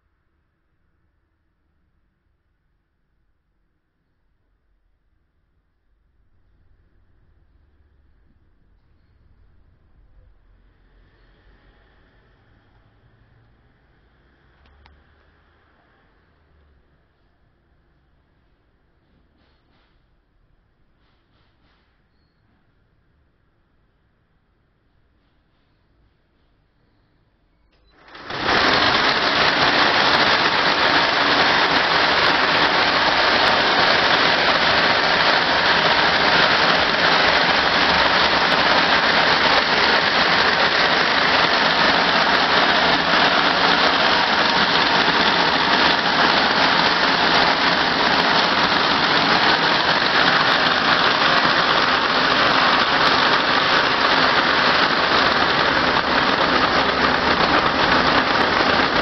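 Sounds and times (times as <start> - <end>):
braiding machine clattering: 28.0 - 59.0.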